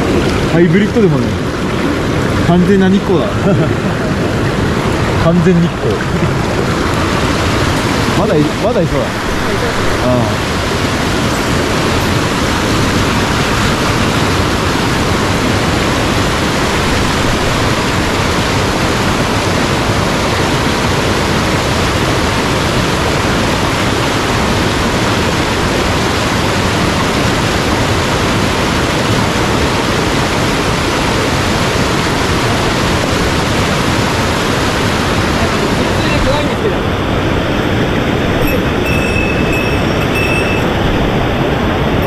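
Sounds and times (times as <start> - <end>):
fast-flowing stream rushing: 0.0 - 42.0.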